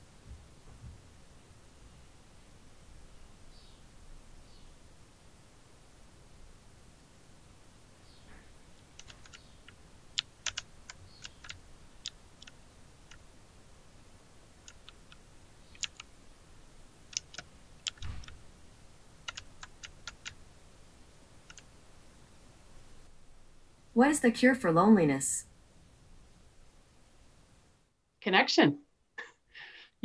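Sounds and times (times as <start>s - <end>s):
keyboard keystroke clicks: 9.0s - 13.2s, 14.7s - 15.2s, 15.8s - 16.1s, 17.1s - 18.4s, 19.3s - 20.4s.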